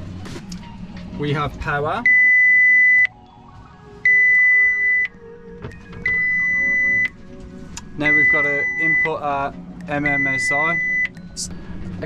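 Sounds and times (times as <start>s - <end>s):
marine radio beeping: 8.1s - 9.2s, 10.0s - 11.1s.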